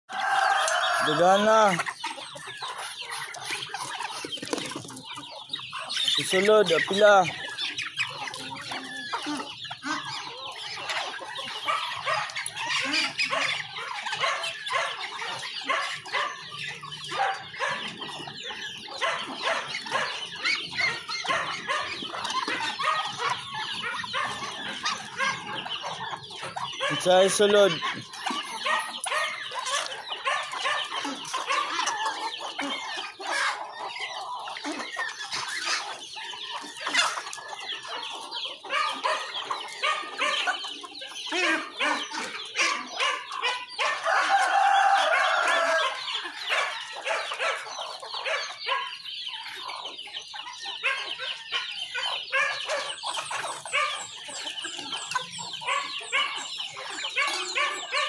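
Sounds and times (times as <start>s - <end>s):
chickens clucking and squawking: 0.0s - 58.0s
rooster crowing: 0.1s - 1.3s, 44.0s - 46.1s.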